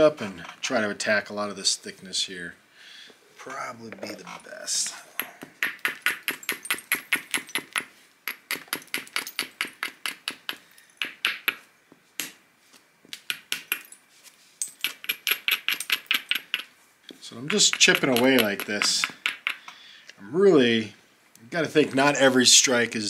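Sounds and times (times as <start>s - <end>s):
small hammer tapping stone: 5.2s - 11.6s, 13.2s - 14.0s, 14.8s - 16.7s, 17.4s - 19.8s.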